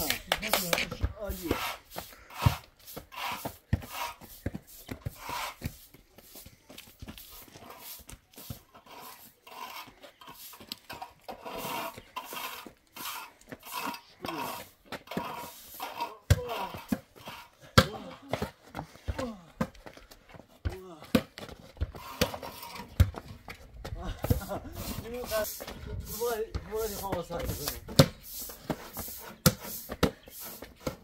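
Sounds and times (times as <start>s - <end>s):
people panting and crying out: 14.0s - 20.8s.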